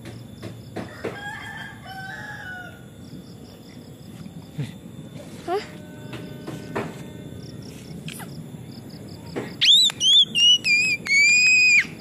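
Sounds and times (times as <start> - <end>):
rooster crowing: 0.8 - 3.0.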